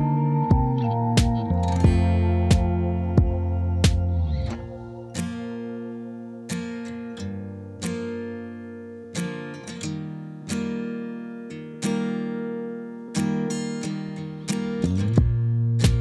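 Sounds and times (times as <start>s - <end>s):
acoustic guitar strumming chords: 0.0s - 16.0s.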